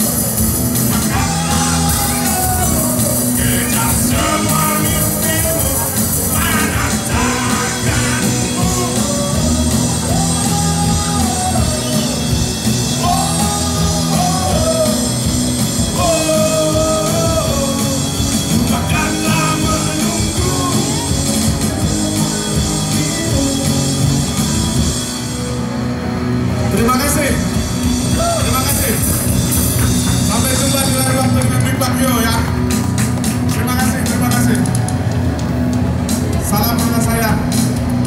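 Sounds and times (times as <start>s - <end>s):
bass guitar: 0.0s - 38.0s
drums: 0.0s - 38.0s
electric guitars: 0.0s - 38.0s
man singing: 0.9s - 24.6s.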